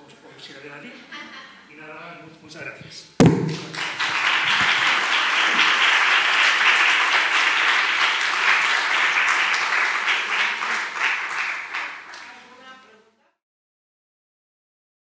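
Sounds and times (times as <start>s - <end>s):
audience applauding: 3.5s - 12.6s.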